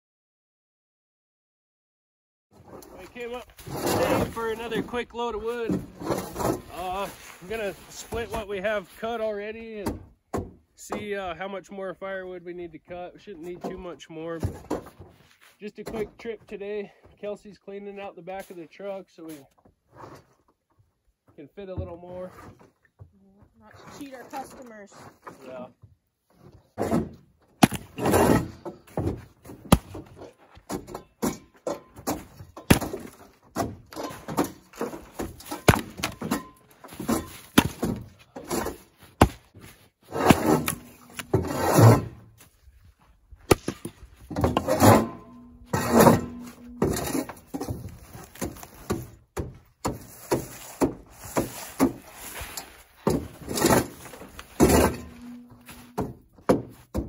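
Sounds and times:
axe splitting firewood: 0:02.6 - 0:05.0, 0:05.6 - 0:08.4, 0:09.8 - 0:11.0, 0:26.4 - 0:42.5, 0:43.4 - 0:57.0.

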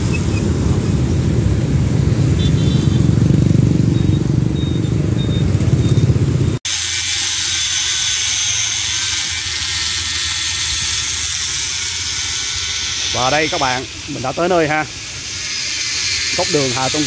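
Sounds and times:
motorbike traffic passing: 0:00.0 - 0:06.6, 0:09.9 - 0:17.0
angle grinder grinding metal: 0:06.7 - 0:17.0.

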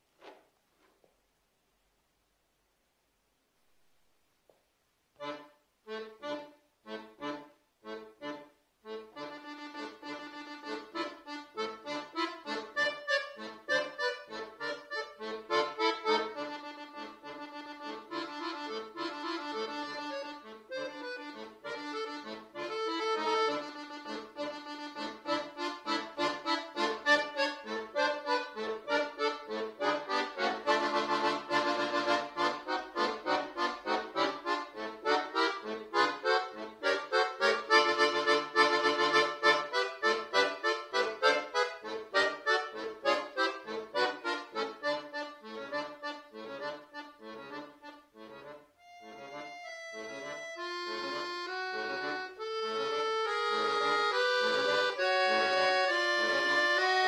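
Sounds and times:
button accordion playing: 0:05.2 - 0:57.0.

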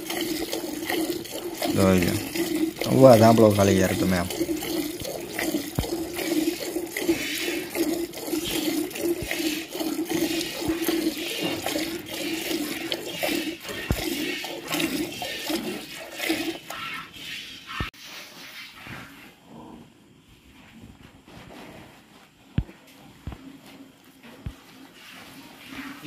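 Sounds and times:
milk squirting into metal pail: 0:00.0 - 0:17.0.

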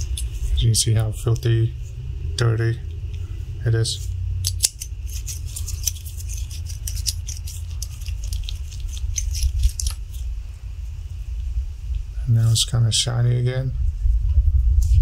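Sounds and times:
steady low hum: 0:00.0 - 0:15.0
metal tool scraping metal: 0:04.4 - 0:10.0.

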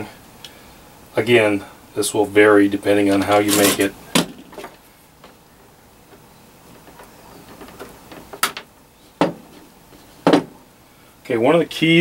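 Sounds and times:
handling wire and tools on wood: 0:03.1 - 0:05.4, 0:06.0 - 0:10.6.

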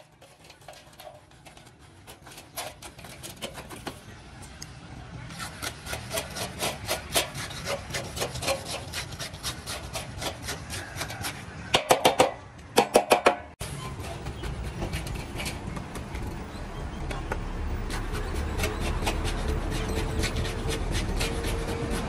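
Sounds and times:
rapid scraping strokes: 0:00.0 - 0:04.2, 0:05.3 - 0:11.7, 0:17.8 - 0:22.0.

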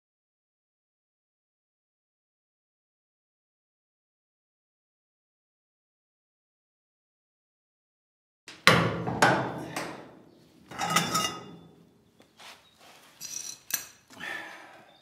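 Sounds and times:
metal bar clanking: 0:10.7 - 0:11.8.

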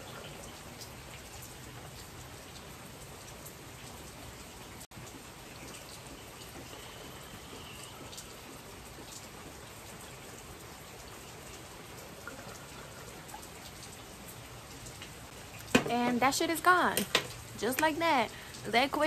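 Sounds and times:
steady rain: 0:00.0 - 0:19.0
raindrop taps: 0:04.9 - 0:19.0.

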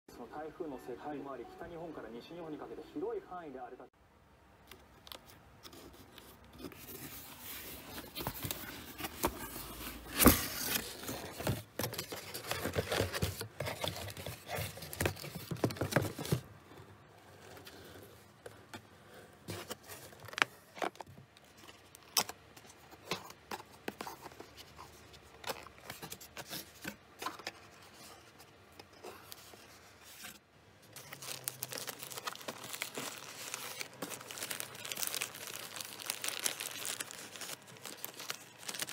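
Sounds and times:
cardboard scraping and rustling: 0:05.6 - 0:38.9.

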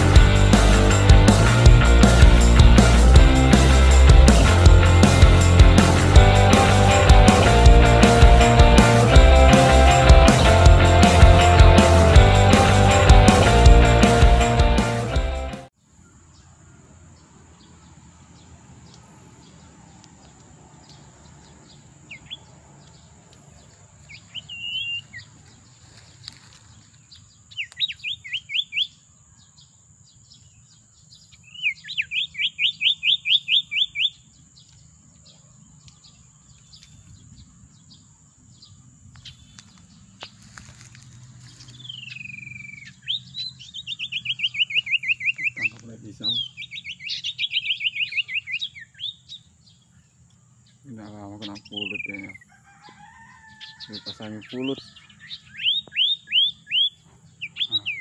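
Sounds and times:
bird calling sharp repeated notes: 0:31.6 - 0:34.3, 0:41.8 - 0:49.3.

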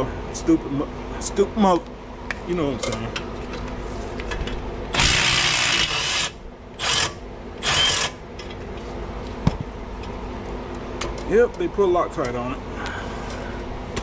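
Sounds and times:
impact wrench bursts: 0:04.9 - 0:08.2.

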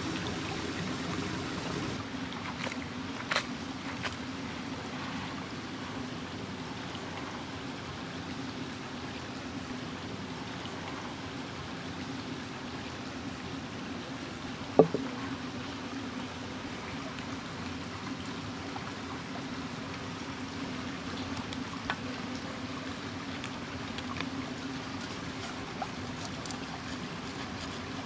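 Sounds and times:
stream flowing: 0:00.0 - 0:28.0
sharp knock: 0:14.8 - 0:15.1.

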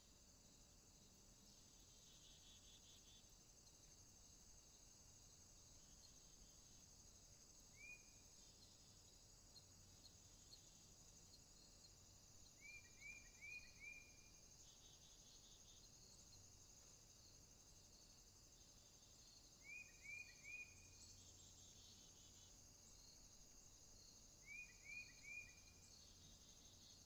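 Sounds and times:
insects trilling: 0:00.0 - 0:27.0
small bird singing: 0:12.5 - 0:16.3, 0:19.6 - 0:23.0, 0:24.4 - 0:27.0.

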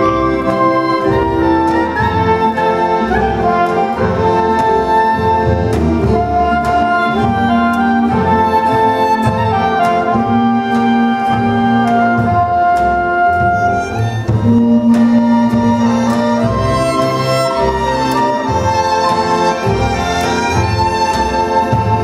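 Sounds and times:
folk orchestra playing dance tune: 0:00.0 - 0:22.0.

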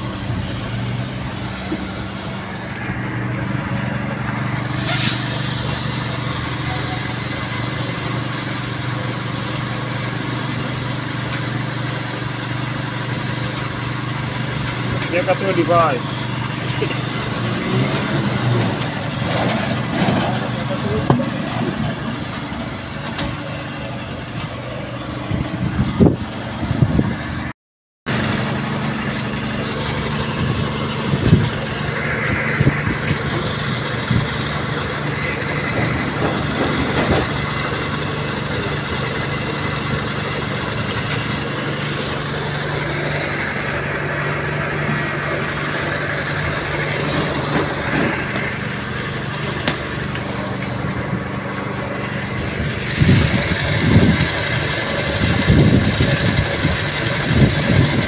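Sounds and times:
engine idling: 0:00.0 - 0:27.2, 0:28.1 - 0:58.0
knocks and scrapes of tyre handling: 0:49.5 - 0:50.9.

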